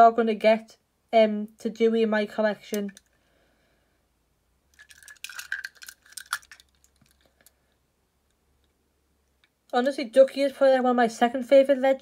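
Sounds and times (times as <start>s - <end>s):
metal toy cars clinking: 4.8s - 7.3s.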